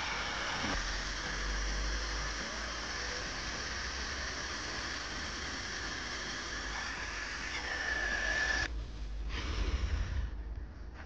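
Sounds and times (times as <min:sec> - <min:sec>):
grinding machine with high whine: 0:00.0 - 0:08.8.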